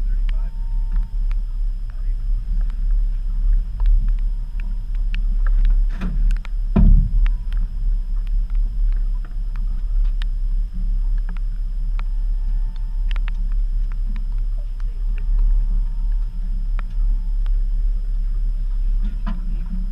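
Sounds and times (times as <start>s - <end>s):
boat motor rumbling: 0.0s - 19.9s
clicks and knocks of gear: 0.1s - 17.7s
loud thump: 5.8s - 7.7s.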